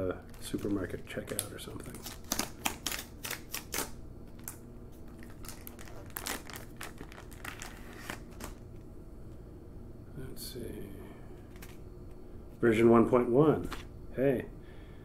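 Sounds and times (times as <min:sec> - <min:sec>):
plastic shrink wrap crinkling: 0:00.1 - 0:08.8.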